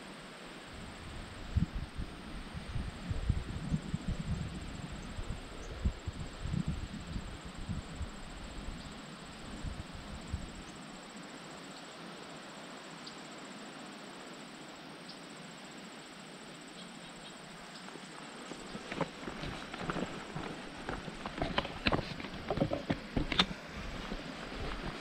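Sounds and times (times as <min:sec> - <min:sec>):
soft outdoor hiss: 0:00.0 - 0:25.0
high-pitched insect trill: 0:00.3 - 0:22.6
thumps on microphone: 0:21.2 - 0:24.8.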